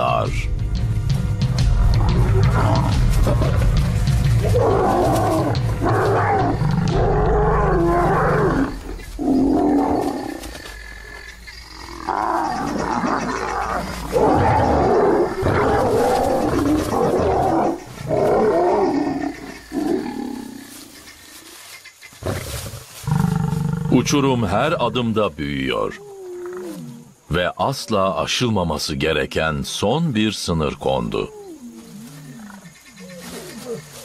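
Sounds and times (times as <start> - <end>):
lions roaring and growling: 1.6 - 21.2, 22.2 - 24.9, 25.9 - 27.2.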